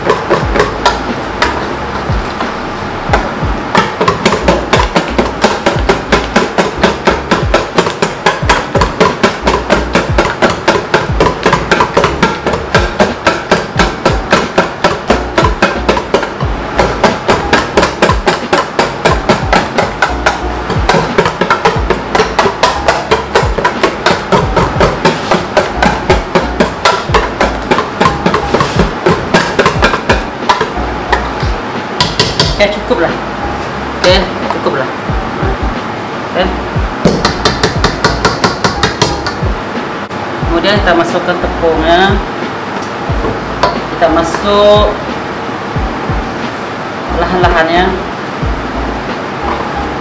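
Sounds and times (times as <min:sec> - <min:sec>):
batter beaten in a bowl: 0:00.0 - 0:01.6, 0:03.2 - 0:30.8.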